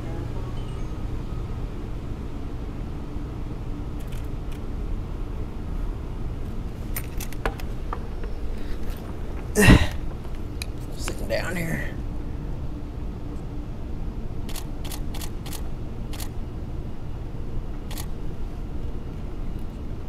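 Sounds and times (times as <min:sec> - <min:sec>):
escalator rumbling: 0:00.0 - 0:12.3.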